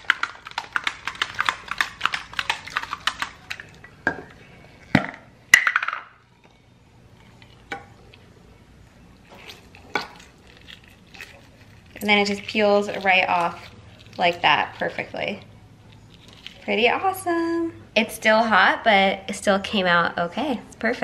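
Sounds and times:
egg rattling in plastic cup: 0.0s - 3.8s, 9.4s - 17.1s.

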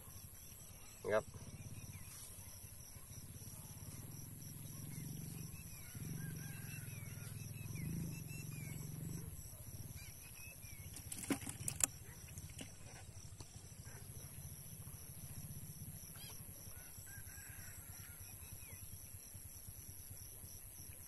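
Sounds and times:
birds chirping: 0.0s - 2.3s, 4.7s - 13.0s.

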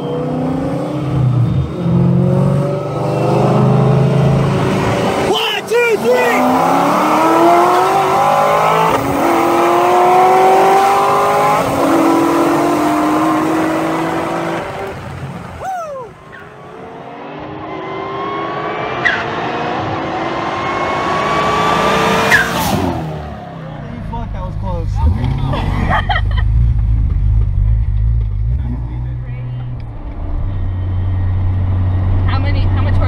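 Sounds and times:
car engines at full throttle: 0.0s - 33.0s
sharp tyre chirp: 22.2s - 23.4s.

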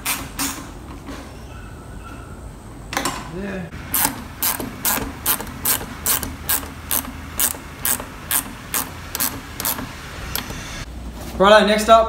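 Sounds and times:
ratchet spanner clicking: 3.9s - 10.8s.

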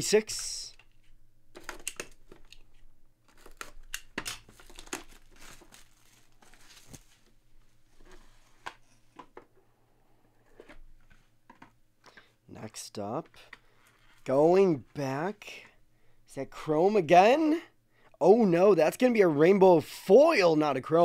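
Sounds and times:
cardboard box rustling and tearing: 3.3s - 7.3s.

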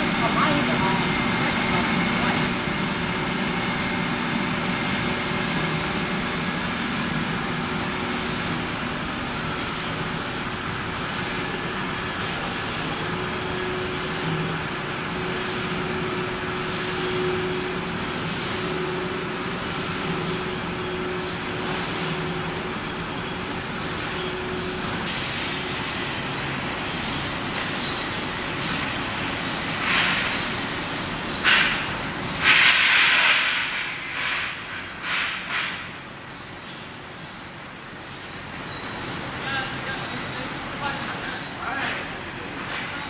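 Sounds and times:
roller conveyors running: 0.0s - 32.9s, 36.1s - 43.0s.

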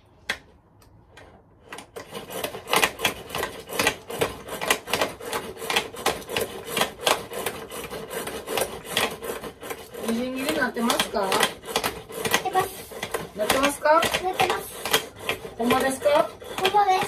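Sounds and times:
pull cord chopper rasping: 5.6s - 17.0s.

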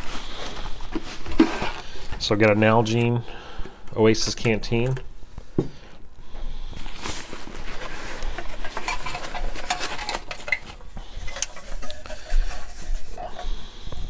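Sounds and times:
fabric rustling: 6.8s - 10.9s.

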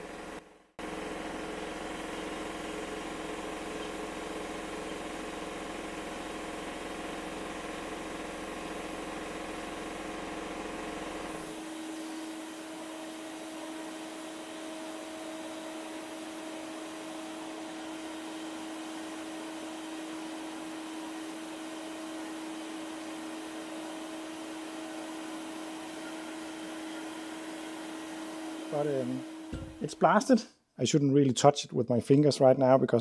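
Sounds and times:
deeper machine hum: 0.0s - 15.6s, 25.8s - 30.3s.

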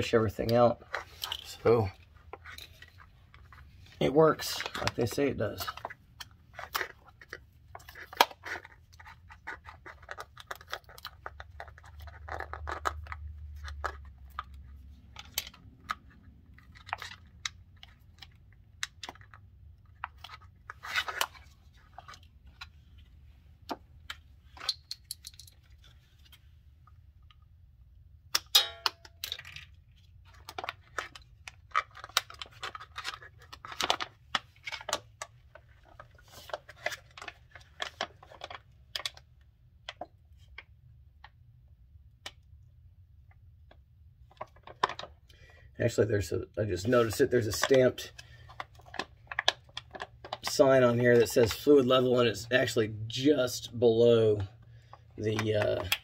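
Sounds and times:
plastic pouch crinkling: 4.4s - 14.4s.

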